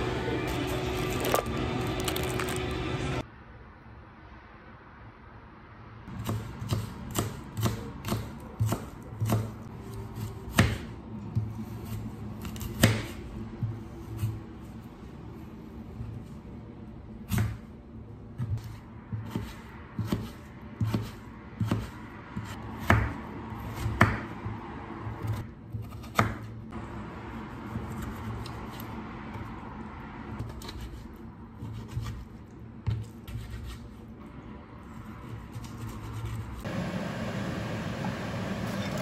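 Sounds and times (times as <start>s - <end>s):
knife chopping on cutting board: 6.2s - 9.6s, 10.2s - 14.4s, 18.4s - 24.4s, 25.3s - 26.5s.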